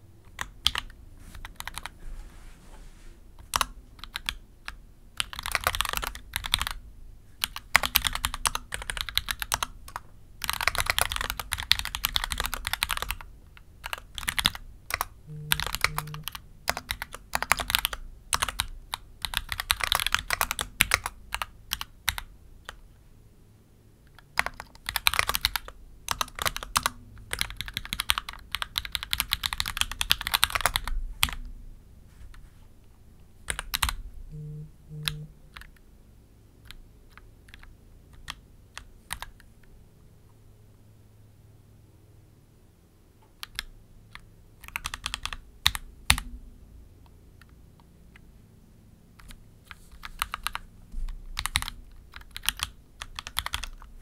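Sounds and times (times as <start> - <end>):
mechanical keyboard typing: 0.3 - 1.9, 3.4 - 6.8, 7.4 - 22.8, 24.1 - 31.4, 33.5 - 35.8, 36.6 - 39.4, 43.4 - 46.3, 50.0 - 50.6, 51.2 - 53.9.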